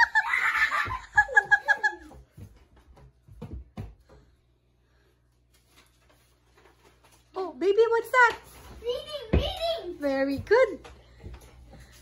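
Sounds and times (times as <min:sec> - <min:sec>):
girl giggling: 0:00.0 - 0:02.2.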